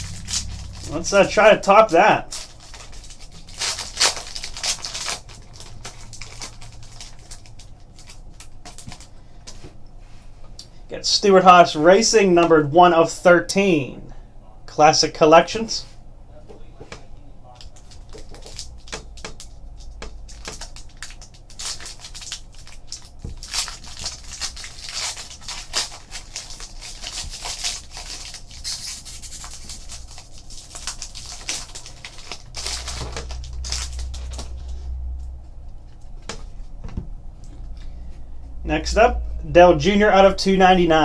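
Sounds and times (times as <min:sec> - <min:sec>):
foil wrapper crinkling and tearing: 0:00.0 - 0:09.2, 0:17.5 - 0:34.6.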